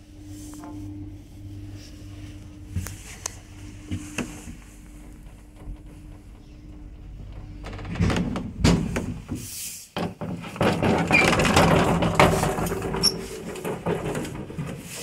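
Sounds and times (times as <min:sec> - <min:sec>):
elevator doors rattling open: 0:03.4 - 0:15.0
wooden knocks and clacks: 0:03.9 - 0:15.0.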